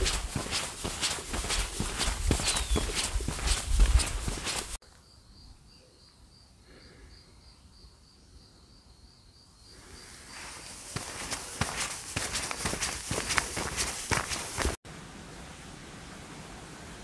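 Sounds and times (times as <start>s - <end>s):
footsteps on dirt trail: 0.0s - 4.8s, 10.1s - 14.8s
cricket chirping faintly: 4.8s - 12.7s.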